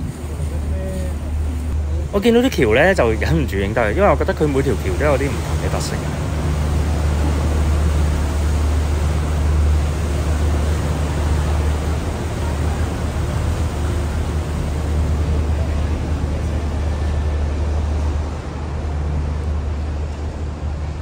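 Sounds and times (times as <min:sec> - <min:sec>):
boat engine hum: 0:00.0 - 0:21.0
hiss of wind or water: 0:00.0 - 0:21.0.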